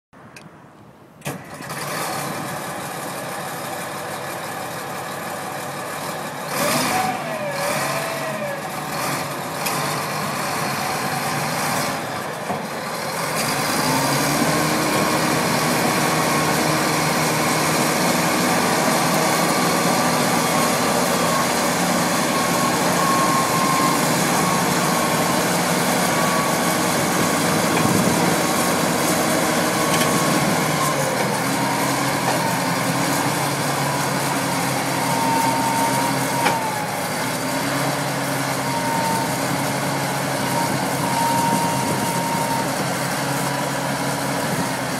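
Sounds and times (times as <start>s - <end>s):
bulldozer diesel engine running: 1.3s - 44.9s.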